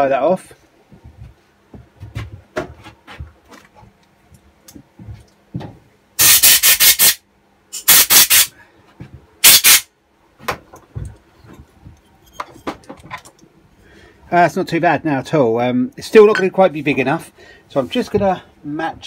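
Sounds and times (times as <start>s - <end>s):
compressed air blasts: 6.2s - 8.5s, 9.4s - 9.9s
handling knocks and clicks: 10.4s - 13.5s.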